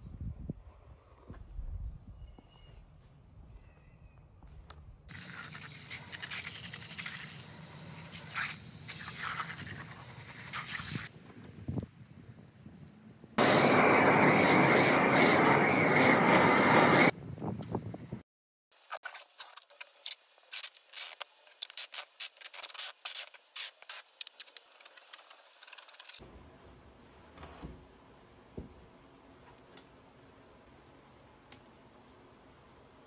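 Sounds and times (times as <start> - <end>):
packing tape rubbed down: 8.1 - 11.1, 18.8 - 26.2
loud rushing hiss: 13.4 - 17.2.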